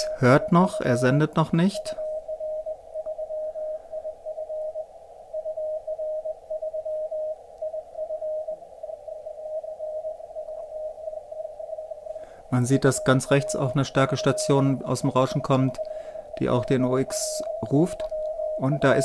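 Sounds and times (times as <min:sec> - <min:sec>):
radio band noise hiss: 0:00.0 - 0:02.8, 0:10.2 - 0:19.0
morse code beeping: 0:00.0 - 0:04.8, 0:12.2 - 0:19.0.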